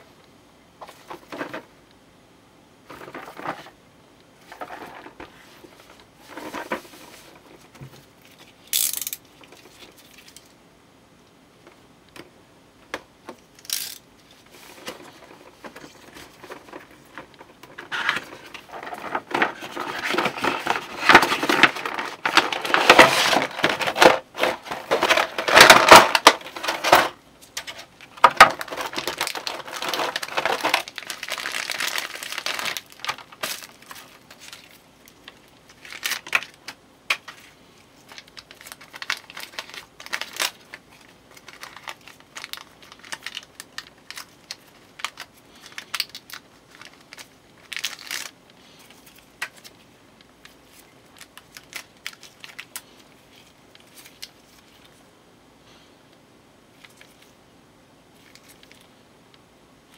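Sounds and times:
plastic parts clicking: 8.6 - 10.5, 12.9 - 14.0
plastic wrapping crinkling: 13.5 - 55.0, 58.2 - 58.9.

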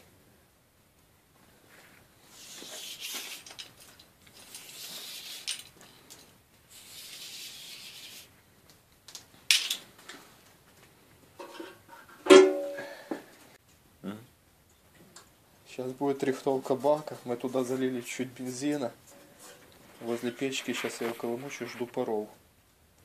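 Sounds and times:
metal strip scraping and rustling: 1.8 - 8.3, 16.7 - 22.1
metallic twang: 12.3 - 12.8.

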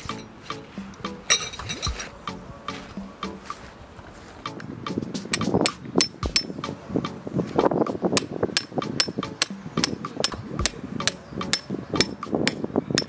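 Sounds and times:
background music: 0.0 - 13.0
sharp metallic strikes: 4.4 - 13.0.

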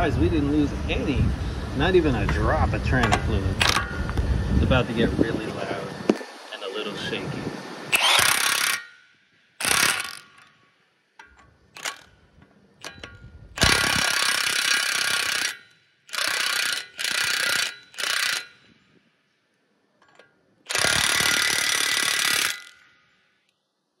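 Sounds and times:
impact wrench hammering: 3.0 - 4.1, 7.9 - 9.0, 9.6 - 10.5, 11.2 - 12.1, 12.8 - 18.7, 20.0 - 22.8.

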